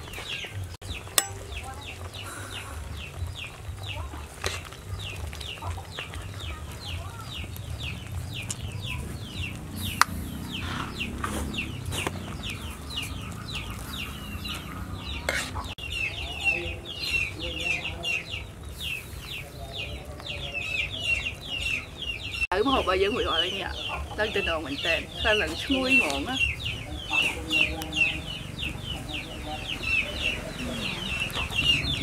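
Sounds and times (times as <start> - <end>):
chicks peeping: 0.0 - 32.0
metal ladle clinking on pot: 1.2 - 1.8.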